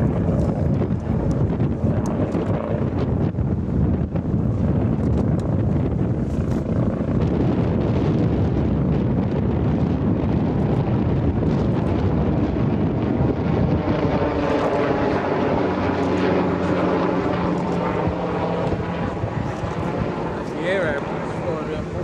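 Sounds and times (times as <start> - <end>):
low rumble: 0.0 - 22.0
wind buffeting microphone: 0.0 - 22.0
engine drone: 10.0 - 22.0.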